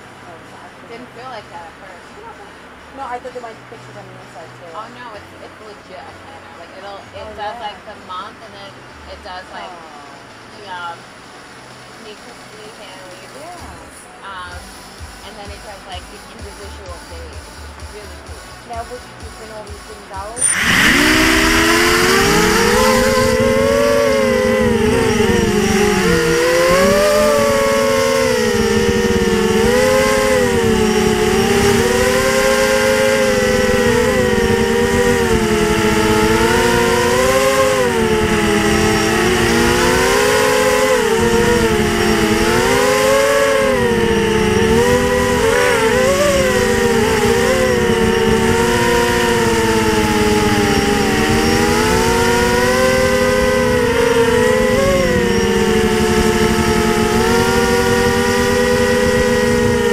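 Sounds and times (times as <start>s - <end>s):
drone motors whining: 12.0s - 59.9s.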